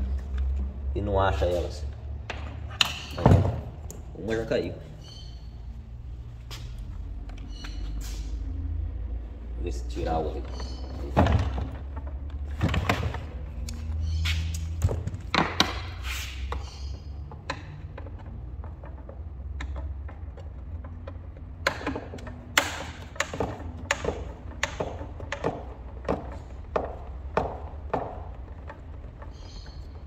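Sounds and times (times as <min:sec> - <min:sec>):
hand tools knocking and clicking: 0:16.5 - 0:30.0.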